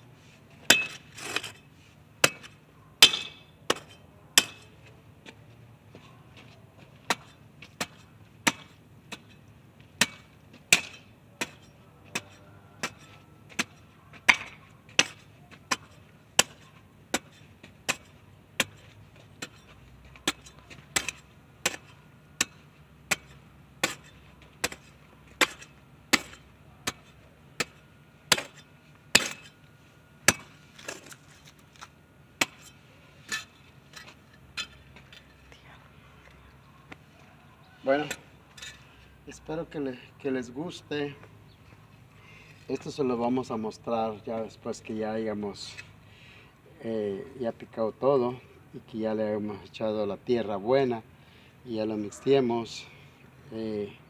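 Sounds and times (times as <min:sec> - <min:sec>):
hoe chopping into soil: 0:00.7 - 0:01.6, 0:02.2 - 0:04.8, 0:07.0 - 0:09.4, 0:10.0 - 0:29.6, 0:30.2 - 0:34.8.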